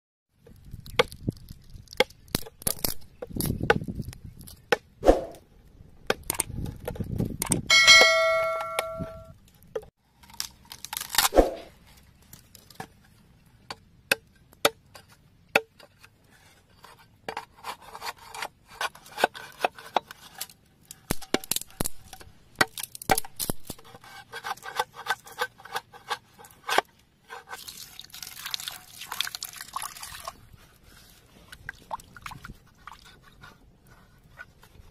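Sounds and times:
short ringing tone: 7.7 - 9.3.

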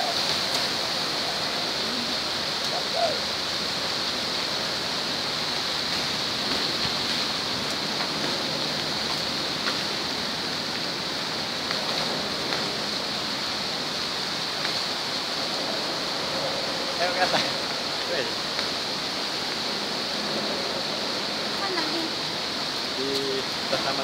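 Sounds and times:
fountain water splashing: 0.0 - 24.0.

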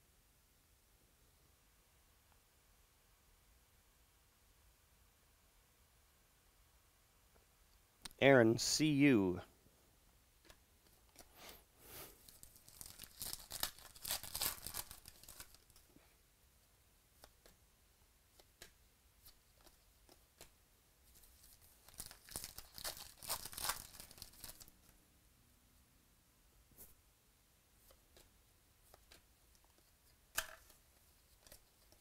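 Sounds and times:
wrappers crinkling: 12.2 - 15.8, 21.1 - 24.7
card packs tearing open: 12.3 - 15.8, 21.4 - 24.7.

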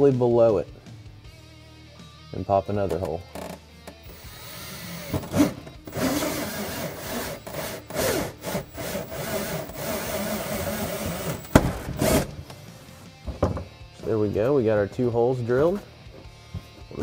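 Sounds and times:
hole saw grinding through plastic: 4.1 - 12.4.

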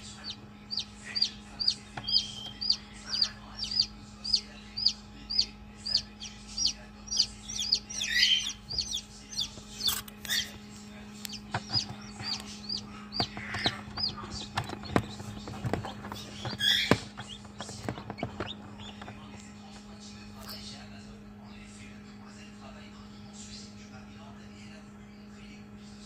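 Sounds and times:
chick peeping: 0.0 - 19.4
incubator hum: 0.0 - 26.0.

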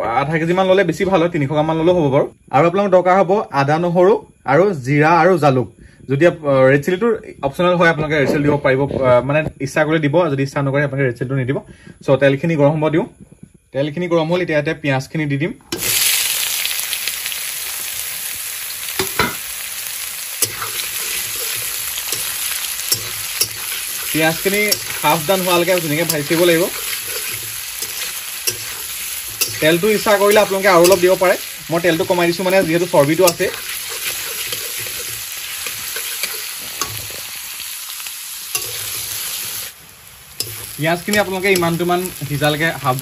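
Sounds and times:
onions sizzling in hot oil: 15.7 - 43.0
metal spatula knocking pan: 19.0 - 19.4, 20.4 - 37.2, 38.6 - 39.1, 40.4 - 42.0.

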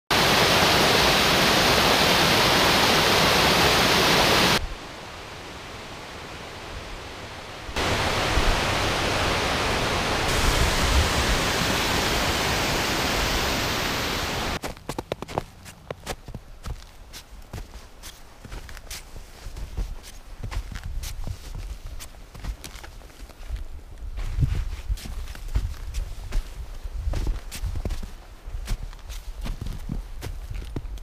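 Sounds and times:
creek rushing over rocks: 0.1 - 14.6.

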